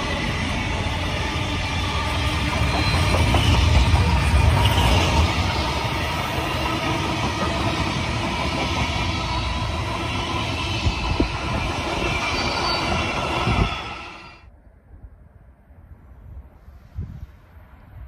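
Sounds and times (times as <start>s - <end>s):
freight train wheels rumbling: 0.0s - 14.5s
faint outdoor noise: 0.0s - 18.0s
high wheel squeal: 1.1s - 5.7s, 8.0s - 14.4s.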